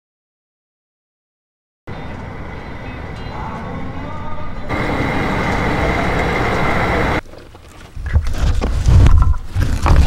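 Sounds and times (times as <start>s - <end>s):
fuel rushing from pump nozzle: 4.7s - 7.2s.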